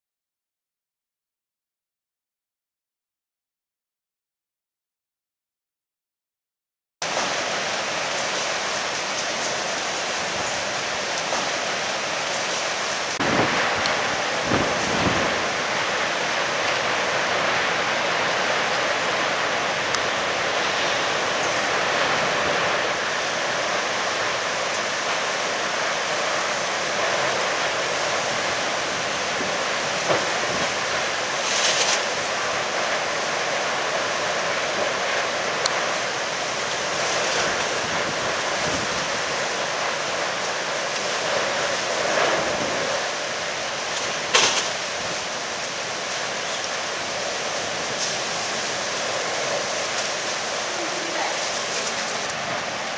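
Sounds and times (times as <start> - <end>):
strong storm wind rushing: 13.0 - 33.3, 35.9 - 40.1, 41.1 - 52.9.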